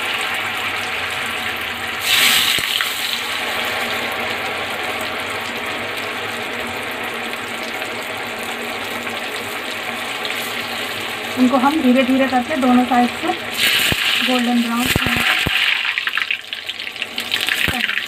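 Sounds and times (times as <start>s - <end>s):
fish deep-frying in hot oil: 0.0s - 18.0s.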